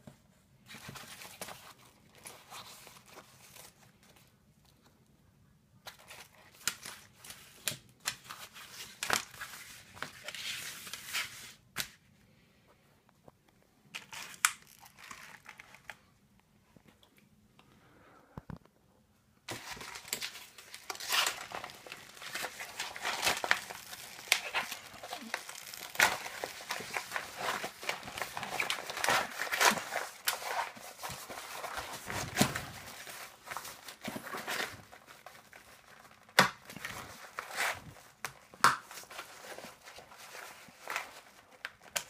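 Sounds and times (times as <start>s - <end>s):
plastic bag crinkling and rustling: 13.9s - 16.2s, 19.5s - 42.0s.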